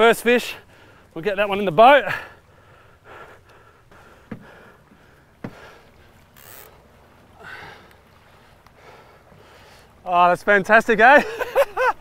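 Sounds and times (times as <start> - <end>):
wind and sea noise: 0.0 - 12.0
short breaths: 2.1 - 6.2, 7.4 - 10.0
sharp knocks on boat: 4.2 - 5.8.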